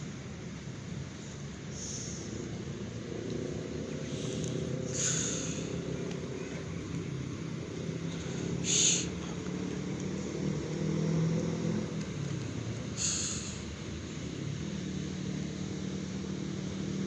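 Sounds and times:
low engine hum: 0.0s - 17.0s
short high hisses: 1.8s - 2.4s, 4.1s - 5.7s, 8.6s - 9.1s, 13.0s - 13.6s.

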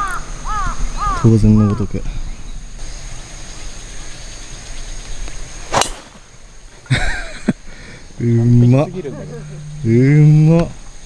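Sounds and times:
golf driver striking ball: 5.7s - 6.3s.

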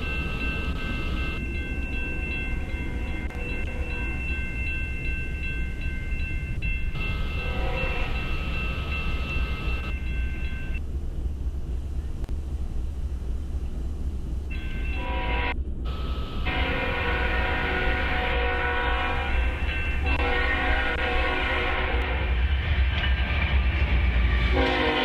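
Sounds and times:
crossing bells ringing: 0.0s - 10.8s, 14.5s - 22.0s
locomotive air horn: 7.4s - 8.2s, 14.9s - 22.4s, 24.5s - 25.0s.

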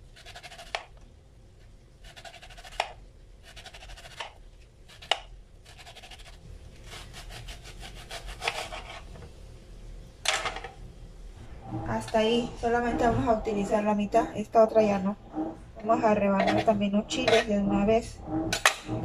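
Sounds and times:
knife slicing onion: 0.0s - 1.0s, 2.0s - 9.1s.

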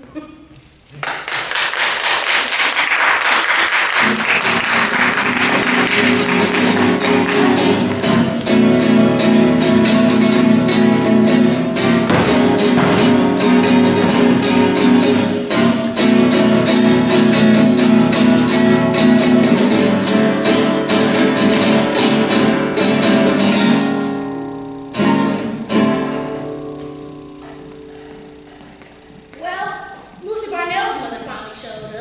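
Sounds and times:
audience applause: 1.0s - 7.9s
flamenco guitar strumming: 3.9s - 30.2s.

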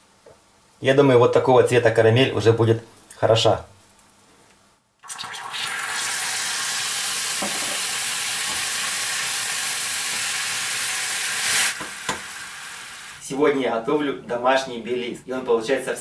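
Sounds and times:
caramel sizzling in a frying pan: 5.2s - 13.2s.

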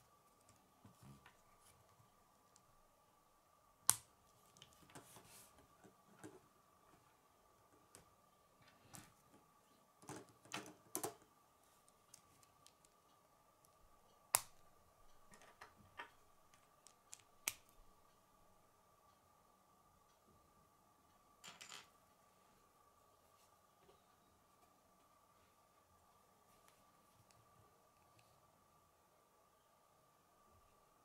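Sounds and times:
faint high hum: 0.0s - 31.0s.

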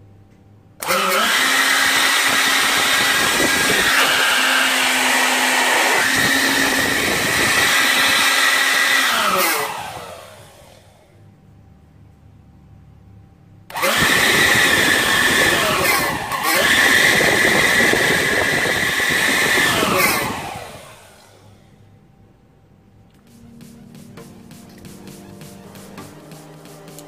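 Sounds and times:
electric motor spinning with high hum: 0.8s - 11.0s, 13.7s - 21.6s.

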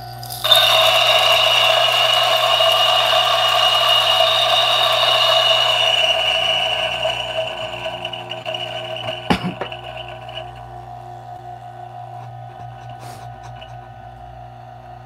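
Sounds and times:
coffee beans crunching: 0.0s - 11.0s
coffee grinder motor whine: 0.0s - 15.0s.

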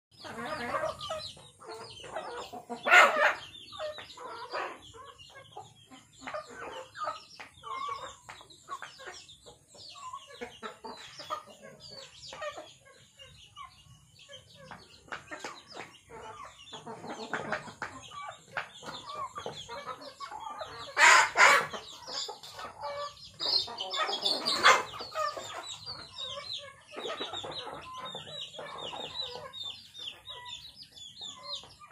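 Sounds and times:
chickens clucking: 0.1s - 31.9s
loud chicken calls: 0.2s - 5.2s, 15.4s - 30.6s.

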